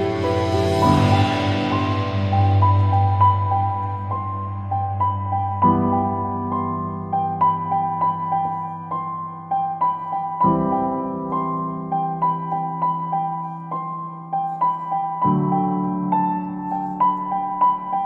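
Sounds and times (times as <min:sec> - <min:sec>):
gentle piano melody: 0:00.0 - 0:18.0.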